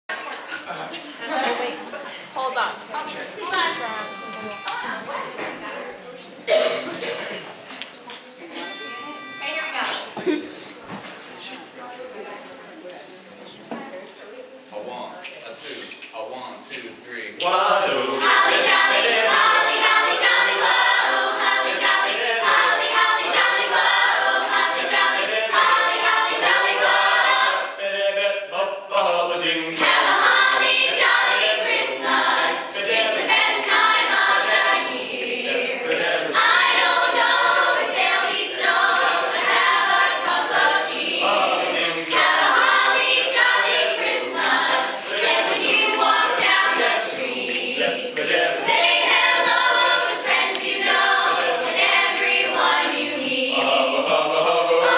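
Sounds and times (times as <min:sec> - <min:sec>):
young choir singing: 0:03.2 - 0:07.6, 0:17.6 - 0:54.9.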